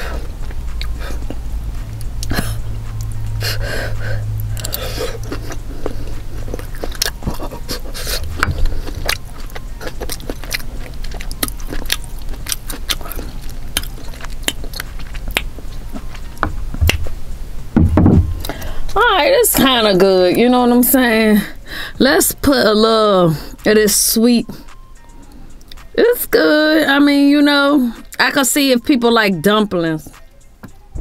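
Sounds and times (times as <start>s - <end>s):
breathy huffs: 0.0s - 1.4s, 3.4s - 6.5s, 18.4s - 19.0s, 21.5s - 22.0s
chewing and wet mouth clicks: 0.4s - 3.3s, 4.0s - 17.1s, 24.7s - 25.9s.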